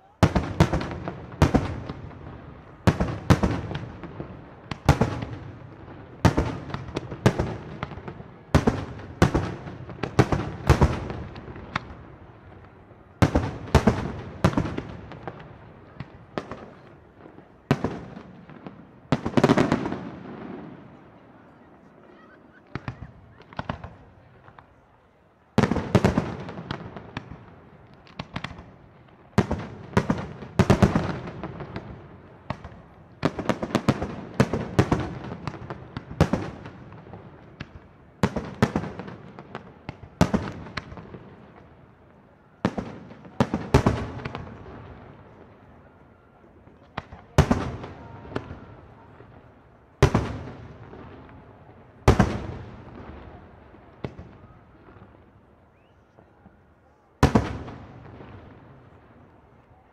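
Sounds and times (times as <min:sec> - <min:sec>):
small firework pops: 0:06.2 - 0:12.0, 0:22.7 - 0:24.8, 0:25.6 - 0:41.8, 0:46.7 - 0:56.6.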